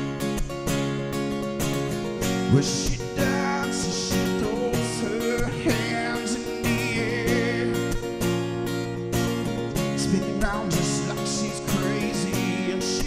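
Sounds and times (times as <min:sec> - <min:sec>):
acoustic guitar strumming: 0:00.0 - 0:13.0
man singing: 0:02.3 - 0:08.4, 0:09.8 - 0:13.0.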